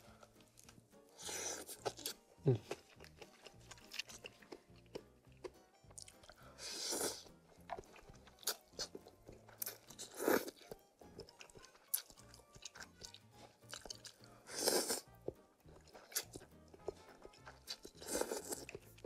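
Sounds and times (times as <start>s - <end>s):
soft background music: 0.0s - 19.0s
crunching and chewing: 0.2s - 19.0s
noodle slurping: 13.9s - 15.1s.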